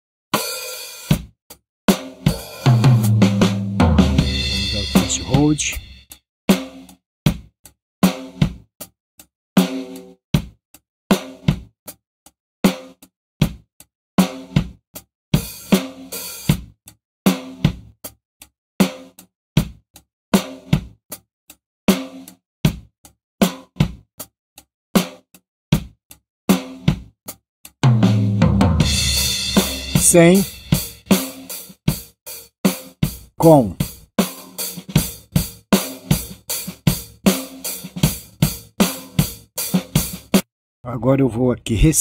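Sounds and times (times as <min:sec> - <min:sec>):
drum kit groove: 0:00.3 - 0:08.7, 0:09.6 - 0:10.5, 0:14.2 - 0:14.8, 0:15.4 - 0:18.0, 0:20.4 - 0:21.0, 0:21.9 - 0:24.0, 0:26.5 - 0:27.1, 0:27.8 - 0:40.4.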